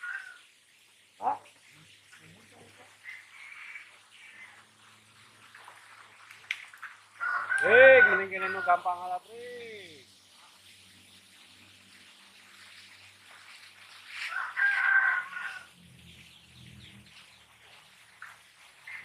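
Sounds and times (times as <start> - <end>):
rooster crowing: 0.0 - 0.4, 7.2 - 8.9, 14.2 - 15.8.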